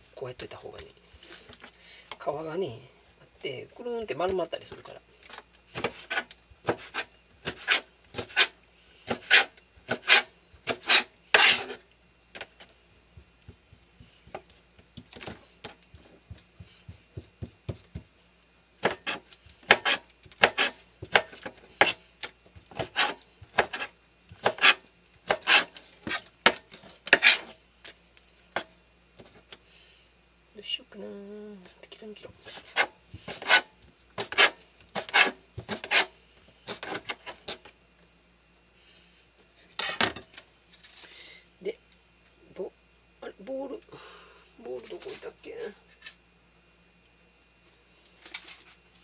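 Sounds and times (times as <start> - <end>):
knife chopping on plastic board: 5.8 - 8.5, 16.3 - 18.1, 18.8 - 22.0, 22.7 - 27.5, 34.2 - 36.1.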